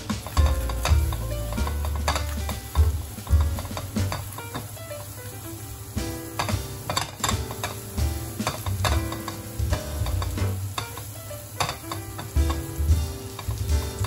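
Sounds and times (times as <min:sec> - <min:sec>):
spatula scraping a pan: 0:00.0 - 0:04.7, 0:06.3 - 0:12.6
food sizzling in a frying pan: 0:00.0 - 0:14.0.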